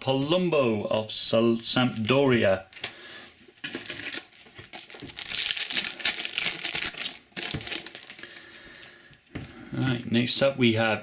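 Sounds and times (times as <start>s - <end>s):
foil wrapper crinkling and tearing: 3.6s - 8.6s.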